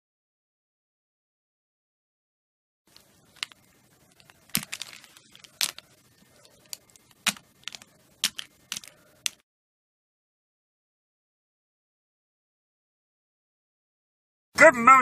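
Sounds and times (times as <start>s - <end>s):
plastic figures clacking together: 2.9s - 9.4s.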